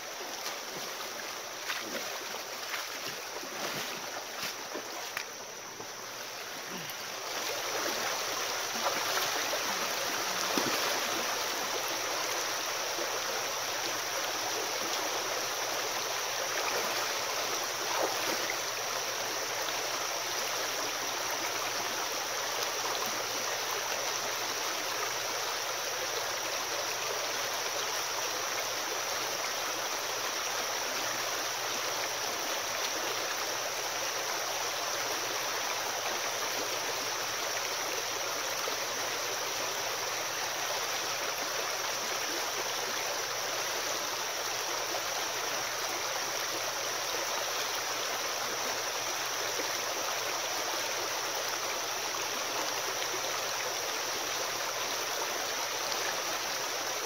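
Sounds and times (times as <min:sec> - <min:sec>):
creek running over stones: 0:00.0 - 0:57.0
splashes from wading: 0:00.2 - 0:05.4, 0:06.1 - 0:11.5, 0:17.8 - 0:18.5.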